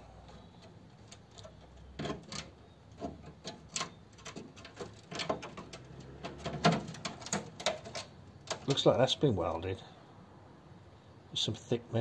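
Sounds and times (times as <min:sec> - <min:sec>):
metallic clicks on sheet metal: 0:00.2 - 0:08.9.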